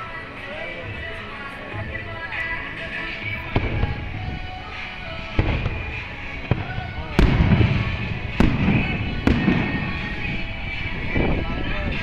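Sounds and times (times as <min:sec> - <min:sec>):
fireworks bangs: 0:03.4 - 0:11.4.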